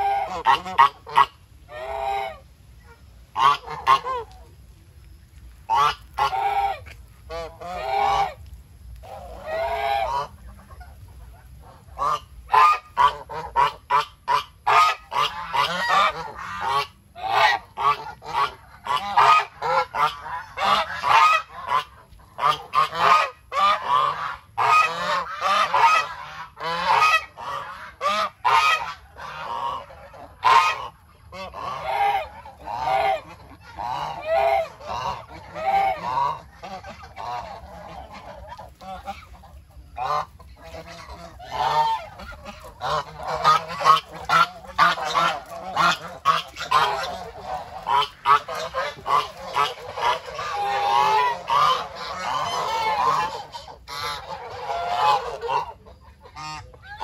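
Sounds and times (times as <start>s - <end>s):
geese honking: 0.0s - 4.5s, 5.3s - 57.0s.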